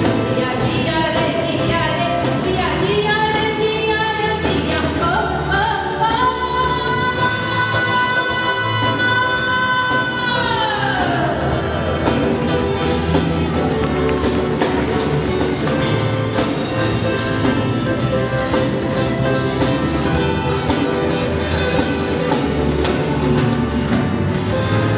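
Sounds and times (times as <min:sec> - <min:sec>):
live band playing instrumental: 0:00.0 - 0:24.9
steady drum beat: 0:09.0 - 0:24.9.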